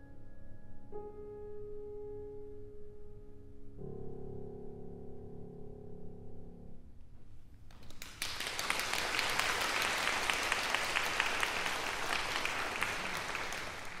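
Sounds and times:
audience applauding: 7.7 - 14.0.

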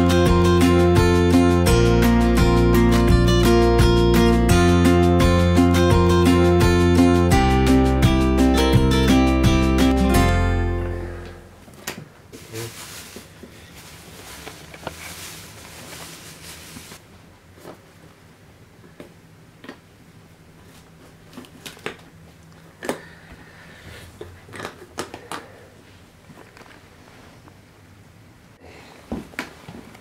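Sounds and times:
balloons rustling: 11.6 - 17.9.

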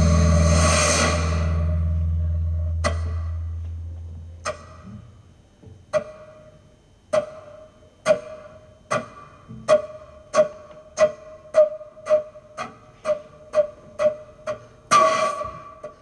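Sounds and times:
deep held note: 0.0 - 4.9.

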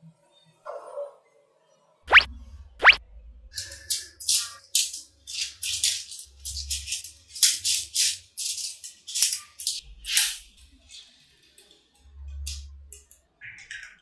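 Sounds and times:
magnetic balls clicking together: 3.6 - 11.8.

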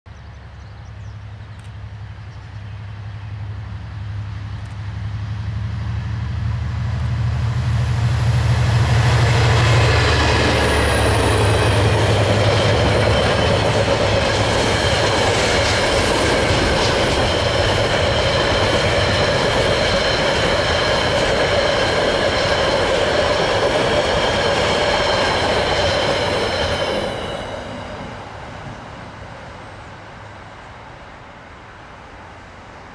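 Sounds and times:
diesel locomotives droning: 0.2 - 32.9
train wheels on rails: 3.4 - 31.1
high wheel squeal: 9.5 - 17.6, 24.3 - 28.2.

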